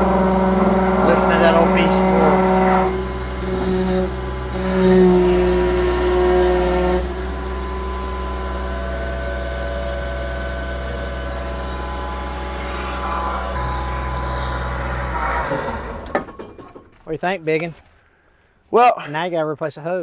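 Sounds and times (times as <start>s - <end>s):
excavator diesel engine running: 0.0s - 16.9s.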